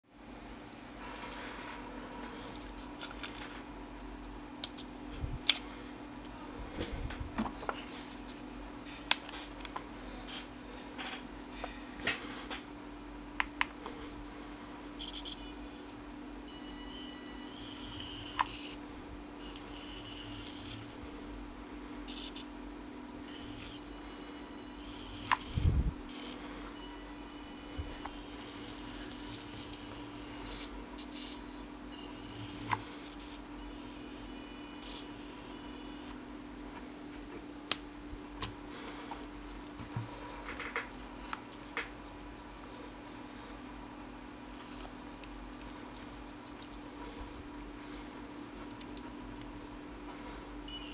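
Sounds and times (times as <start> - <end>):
toy truck motor whirring: 15.0 - 18.8, 19.4 - 21.0, 22.1 - 22.5, 23.3 - 36.2, 50.7 - 50.9
high-pitched buzz: 15.0 - 21.1, 22.0 - 22.5, 23.2 - 36.2, 50.7 - 50.9.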